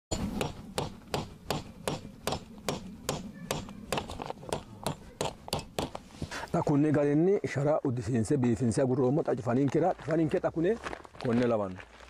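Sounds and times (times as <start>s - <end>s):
hammer tapping: 0.1s - 6.0s.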